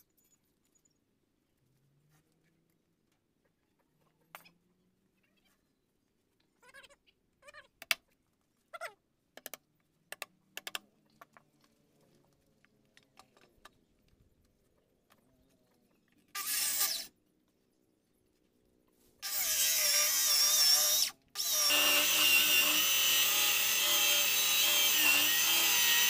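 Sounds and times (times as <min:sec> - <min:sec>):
power tool running: 0:19.3 - 0:26.0.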